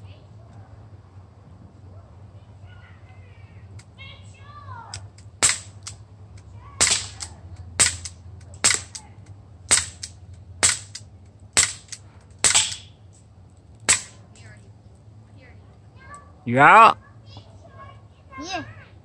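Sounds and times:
air pistol shots cracking: 0:04.9 - 0:06.0, 0:06.8 - 0:09.0, 0:09.7 - 0:13.0, 0:13.8 - 0:14.2.

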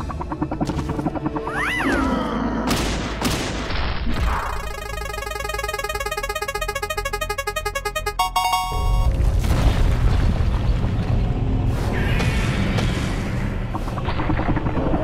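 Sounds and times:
music: 0:00.0 - 0:03.6, 0:04.4 - 0:09.1
fast ticking spin jingle: 0:04.6 - 0:09.0.

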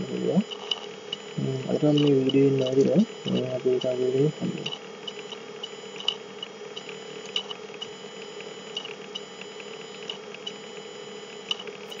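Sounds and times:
electrical hum and hiss: 0:00.0 - 0:12.0.

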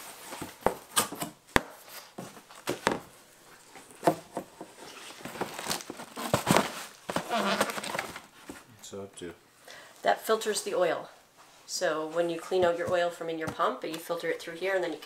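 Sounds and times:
cardboard rustling and scraping: 0:00.0 - 0:08.7.

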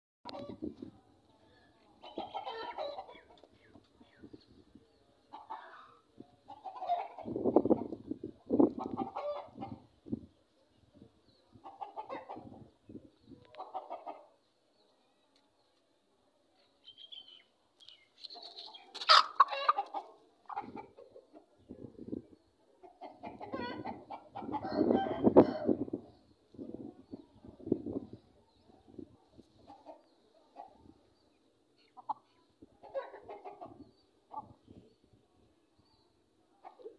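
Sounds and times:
hen clucking: 0:02.0 - 0:03.8, 0:05.2 - 0:09.9, 0:11.5 - 0:12.8, 0:13.5 - 0:14.3, 0:18.4 - 0:21.6, 0:22.8 - 0:25.9, 0:31.8 - 0:34.6.

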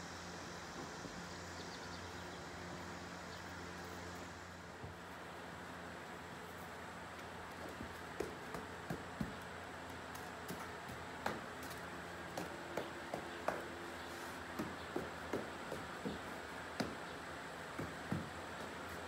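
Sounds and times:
foam noodle tapping horse: 0:07.2 - 0:17.1.

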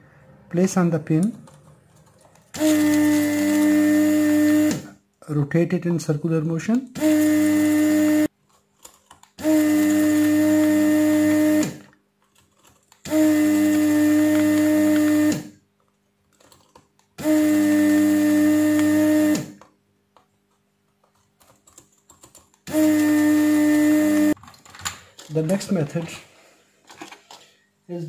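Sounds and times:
desoldering vacuum pump humming: 0:02.5 - 0:05.0, 0:06.9 - 0:08.3, 0:09.4 - 0:11.9, 0:13.0 - 0:15.6, 0:17.2 - 0:19.7, 0:22.6 - 0:26.2.

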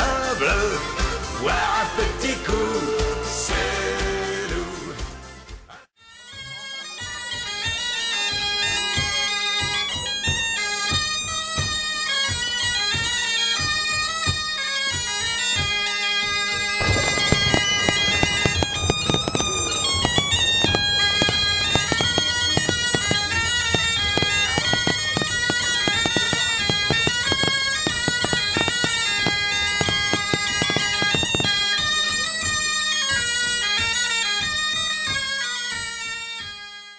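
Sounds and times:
bagpipe melody with drone: 0:06.0 - 0:36.9
drumbeats: 0:16.8 - 0:32.2.

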